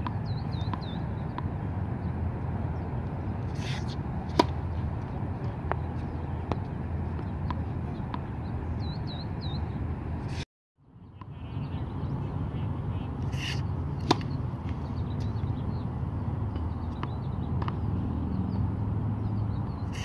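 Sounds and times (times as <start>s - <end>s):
tennis ball bouncing on hard court: 0.0s - 1.5s, 3.4s - 8.4s, 13.3s - 15.4s, 16.5s - 17.8s
low outdoor rumble: 0.0s - 8.9s
racket hitting tennis ball: 3.3s - 8.3s, 13.2s - 15.3s
bird chirping: 7.3s - 9.8s.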